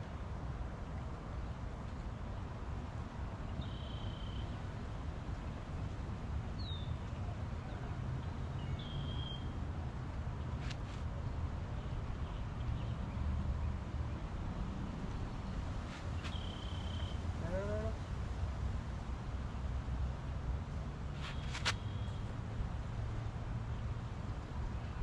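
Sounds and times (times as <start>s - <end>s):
bird whistled calls: 8.8s - 9.5s, 16.3s - 17.2s.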